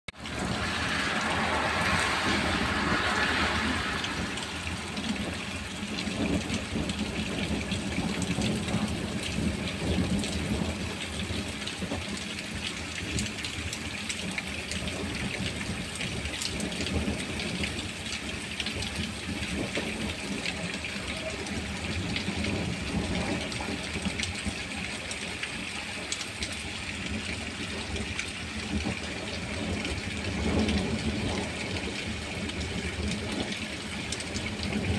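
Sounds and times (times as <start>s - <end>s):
heavy rain pouring: 0.1s - 34.9s
low rumble: 0.2s - 8.9s
close raindrops tapping: 3.9s - 34.9s.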